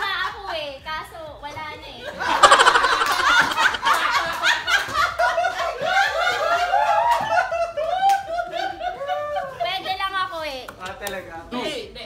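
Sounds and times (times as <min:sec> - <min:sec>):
group of people laughing: 0:02.0 - 0:09.9.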